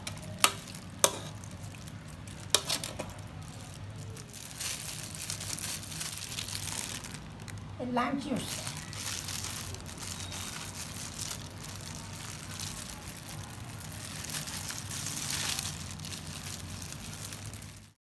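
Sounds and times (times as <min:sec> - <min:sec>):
low steady hum: 0:00.0 - 0:18.0
plastic glove crinkling: 0:00.0 - 0:18.0.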